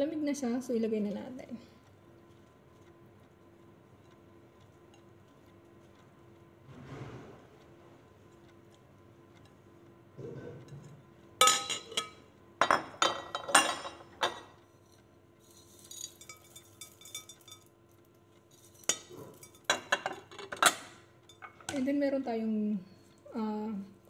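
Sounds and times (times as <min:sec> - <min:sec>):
food scraped off plate: 0:06.7 - 0:07.6.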